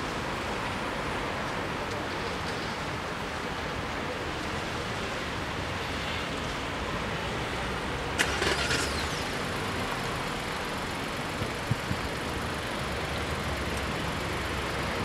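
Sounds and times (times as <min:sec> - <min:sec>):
vehicle engines idling: 0:07.6 - 0:15.0.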